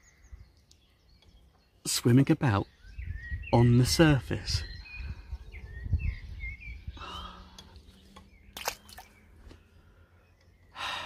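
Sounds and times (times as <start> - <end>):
songbirds chirping: 0.0 - 11.0
low rumble on microphone: 2.6 - 8.6.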